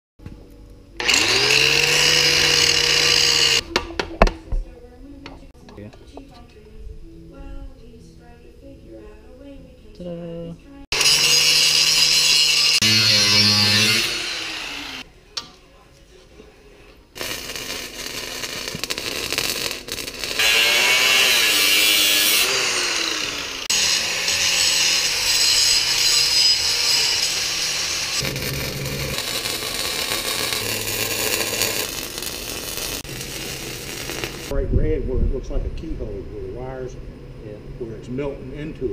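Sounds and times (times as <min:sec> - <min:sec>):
angle grinder cutting steel: 0:01.0 - 0:03.6, 0:10.9 - 0:15.0, 0:17.2 - 0:34.5.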